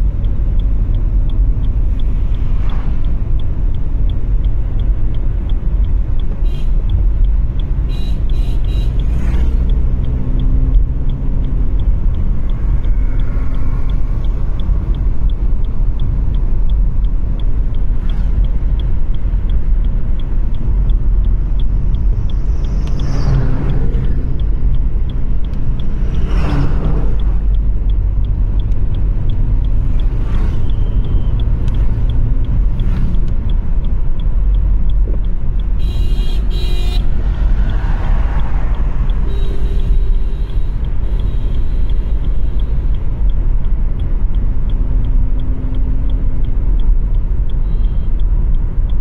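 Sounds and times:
car cabin road rumble: 0:00.0 - 0:49.0
vehicle passing close: 0:21.9 - 0:33.5, 0:36.9 - 0:39.6.

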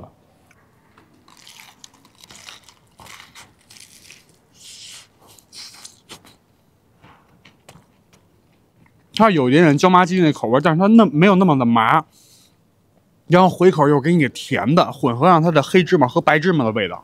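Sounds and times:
wet chewing: 0:01.0 - 0:06.4
crunching fried coating: 0:01.2 - 0:06.3.

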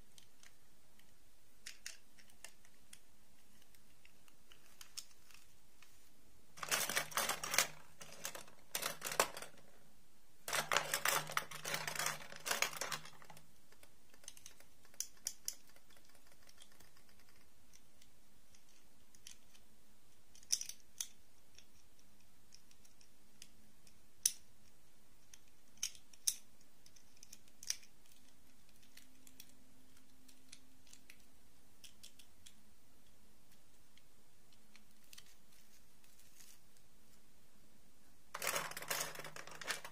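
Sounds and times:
plastic clicks: 0:00.1 - 0:05.5, 0:10.5 - 0:19.6, 0:20.3 - 0:35.4, 0:38.4 - 0:39.9
plastic dolls rattling in wooden box: 0:06.6 - 0:09.7, 0:10.5 - 0:13.4, 0:38.4 - 0:39.9.

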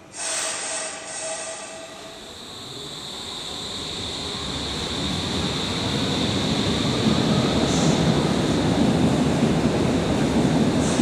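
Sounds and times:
high train whine: 0:00.0 - 0:11.0
subway train rumbling: 0:00.0 - 0:11.0
brief high hisses: 0:00.1 - 0:01.8.

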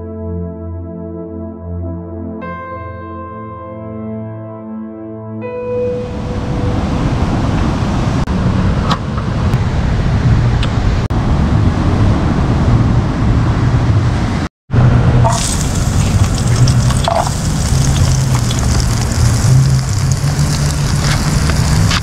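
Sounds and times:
wind on microphone: 0:06.1 - 0:22.0.

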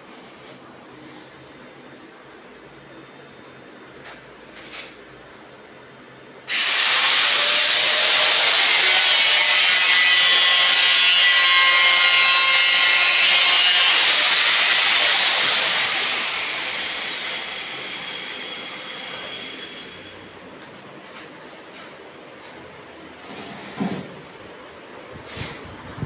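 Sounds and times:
angle grinder cutting: 0:06.5 - 0:20.1.

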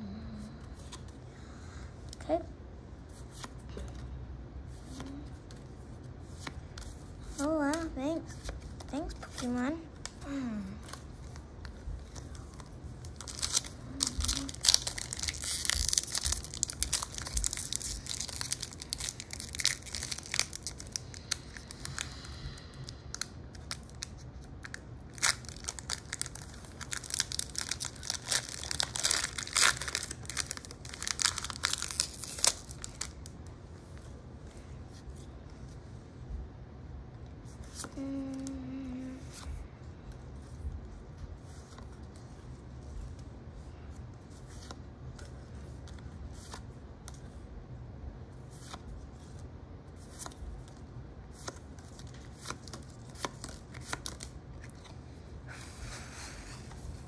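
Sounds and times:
wrappers tearing and crinkling: 0:12.3 - 0:22.0, 0:23.1 - 0:33.3.

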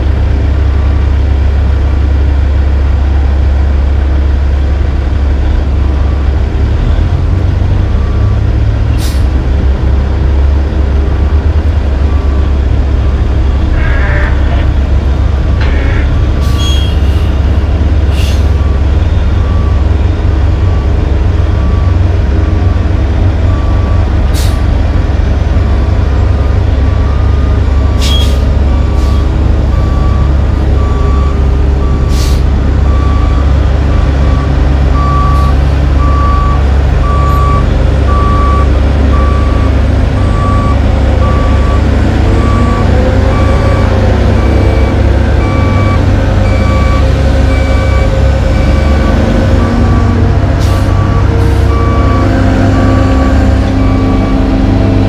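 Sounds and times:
diesel machinery running: 0:00.0 - 0:55.0
engine revving: 0:34.3 - 0:55.0.

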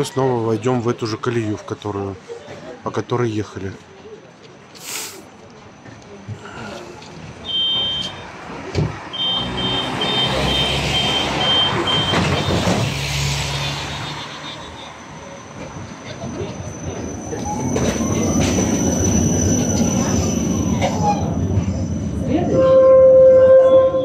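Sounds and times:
tram passing: 0:03.5 - 0:24.0
wheels squealing on rail: 0:09.1 - 0:24.0
high electronic beeps: 0:09.2 - 0:12.6.

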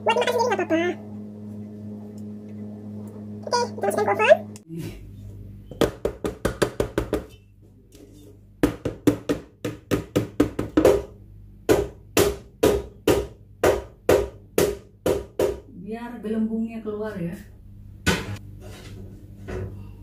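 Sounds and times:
cake pans knocking on counter: 0:05.8 - 0:07.3, 0:08.6 - 0:11.1.

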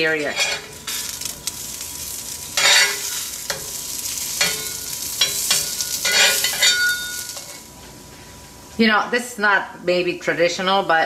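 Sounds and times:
metal spatula scraping pan: 0:00.0 - 0:01.3, 0:02.5 - 0:07.7
food sizzling in butter: 0:00.0 - 0:08.4.

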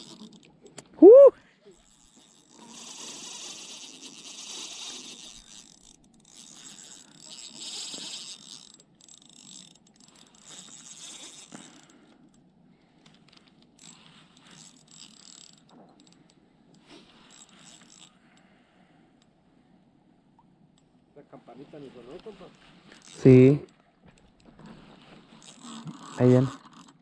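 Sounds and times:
fishing reel gears whirring: 0:00.0 - 0:19.4, 0:22.1 - 0:27.0
fishing rod handling noise: 0:01.7 - 0:18.5, 0:22.1 - 0:27.0.

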